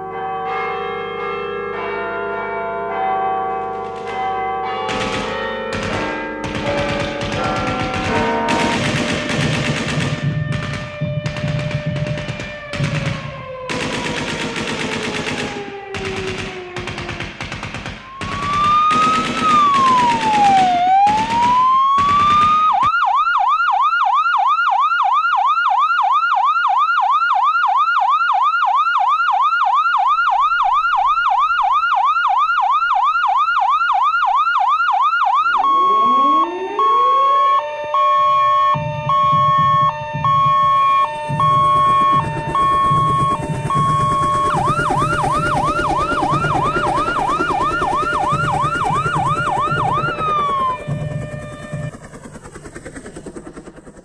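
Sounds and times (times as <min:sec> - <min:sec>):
electronic police siren: 0:04.9 - 0:17.4, 0:18.0 - 0:54.0
sharp rapid hits with falling tones: 0:04.9 - 0:23.0, 0:35.4 - 0:54.0.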